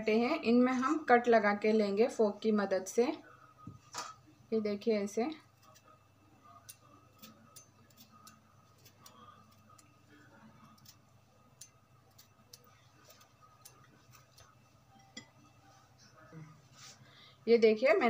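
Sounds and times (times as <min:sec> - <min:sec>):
fork clicking on potatoes: 0:06.6 - 0:15.3.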